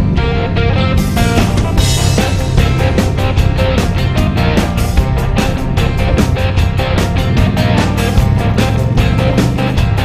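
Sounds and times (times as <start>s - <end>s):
rock music with guitar and drums: 0.0s - 10.0s.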